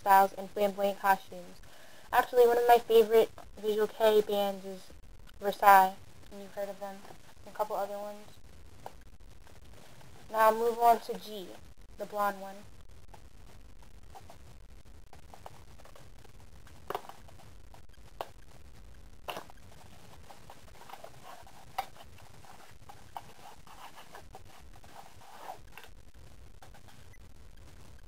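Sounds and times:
low steady hum: 0:00.0 - 0:28.0
soft cardboard rustling: 0:19.2 - 0:26.0.

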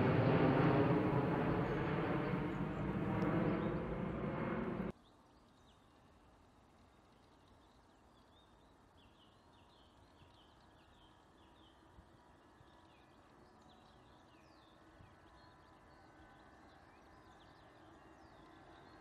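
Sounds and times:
birds chirping: 0:00.0 - 0:04.9
faint outdoor rumble: 0:00.0 - 0:04.9.

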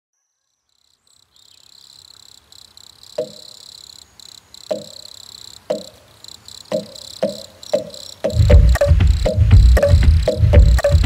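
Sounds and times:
high chirring: 0:03.1 - 0:03.9, 0:04.6 - 0:11.0
heavy drum hits: 0:08.3 - 0:11.0.

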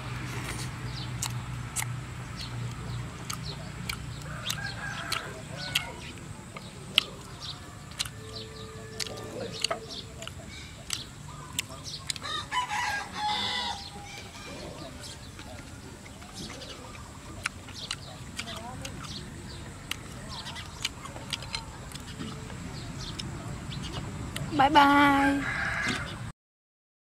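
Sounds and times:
chewing clicks: 0:00.5 - 0:12.3, 0:14.7 - 0:24.5
chickens clucking: 0:00.6 - 0:26.3
chopsticks clicking: 0:01.2 - 0:12.3, 0:16.0 - 0:23.3
rooster crowing: 0:04.2 - 0:06.1, 0:07.4 - 0:09.4, 0:12.2 - 0:14.6, 0:25.0 - 0:26.3.

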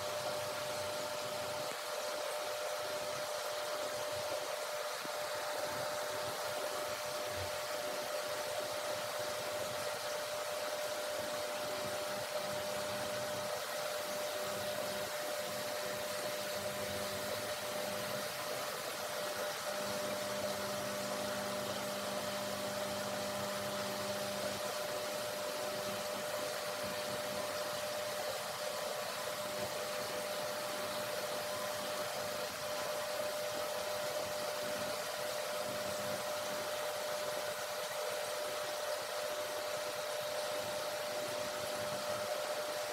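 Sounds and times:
steady hiss: 0:00.0 - 0:42.9.

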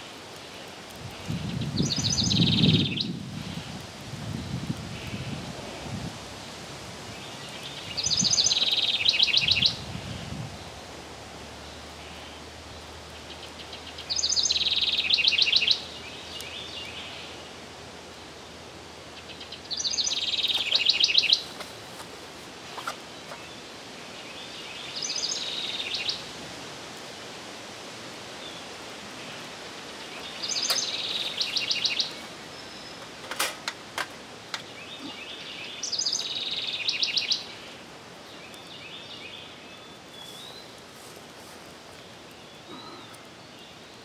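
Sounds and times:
outdoor background noise: 0:00.0 - 0:44.0
songbird trilling: 0:07.6 - 0:09.8, 0:13.3 - 0:17.2, 0:19.3 - 0:21.5, 0:30.1 - 0:33.1, 0:34.7 - 0:37.6.

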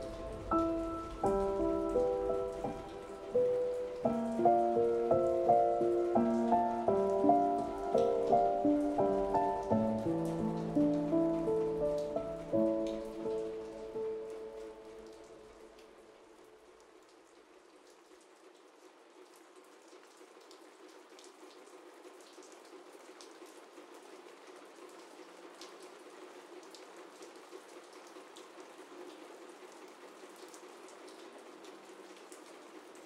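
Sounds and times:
steady quiet rain: 0:00.0 - 0:33.0.

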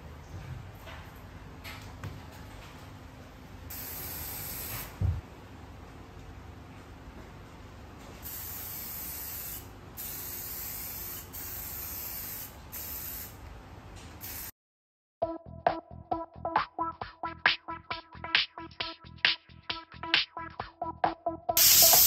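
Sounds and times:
aerosol spray can hissing: 0:03.7 - 0:04.9, 0:08.3 - 0:13.4, 0:21.6 - 0:22.0.

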